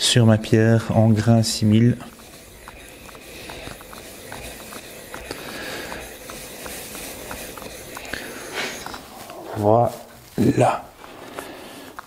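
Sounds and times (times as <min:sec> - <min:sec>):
chisel scraping on whetstone: 0:01.2 - 0:09.6.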